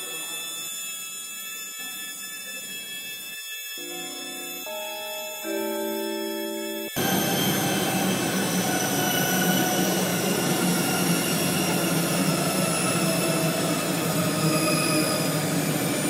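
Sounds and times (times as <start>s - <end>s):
sustained pitched chord: 3.8s - 16.0s.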